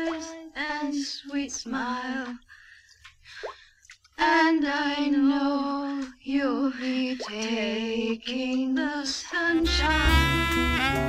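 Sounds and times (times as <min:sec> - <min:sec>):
woman singing with vibrato: 0:00.0 - 0:02.4, 0:04.2 - 0:11.0
instrumental music with saxophone: 0:09.4 - 0:11.0.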